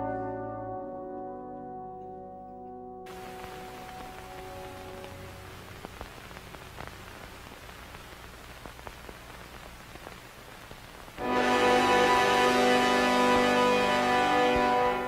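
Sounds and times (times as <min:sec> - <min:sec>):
faint crackling clicks: 0:02.0 - 0:11.2
steady hiss: 0:03.1 - 0:15.0
held music notes: 0:11.2 - 0:15.0.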